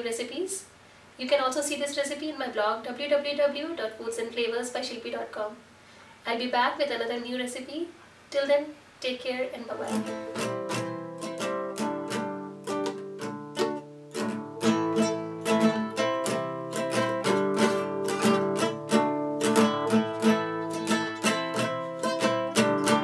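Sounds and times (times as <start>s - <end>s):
plucked guitar notes: 9.9s - 23.0s.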